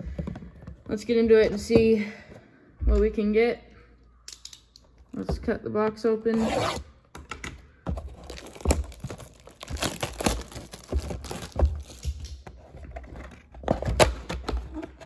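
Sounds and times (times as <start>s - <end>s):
plastic wrap crinkling and tearing: 8.2s - 12.2s.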